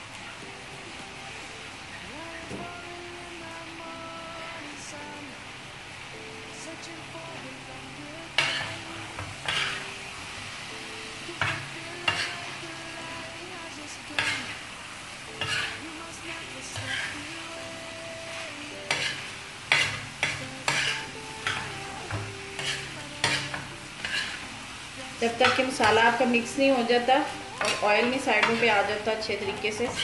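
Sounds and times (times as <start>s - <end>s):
oil sizzling: 0.0s - 30.0s
metal spatula scraping a pan: 8.4s - 8.8s, 9.4s - 9.9s, 11.4s - 12.4s, 14.2s - 14.6s, 15.3s - 15.8s, 16.7s - 17.3s, 18.7s - 24.5s, 27.2s - 30.0s.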